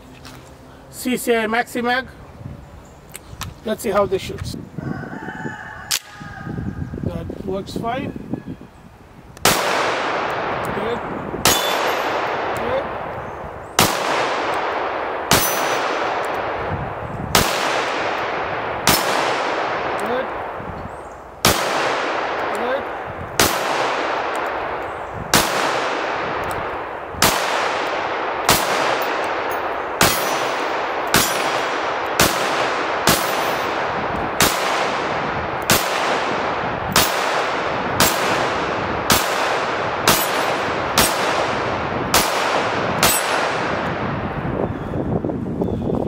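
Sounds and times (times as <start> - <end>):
pistol shots echoing: 9.4 - 20.7, 21.4 - 44.3
steel targets clanging: 11.5 - 12.2, 30.0 - 31.7.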